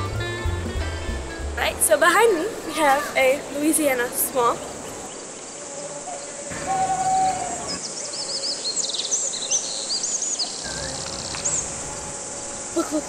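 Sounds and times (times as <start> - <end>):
outdoor background hiss: 0.0 - 13.0
birds chirping with trill: 2.3 - 13.0.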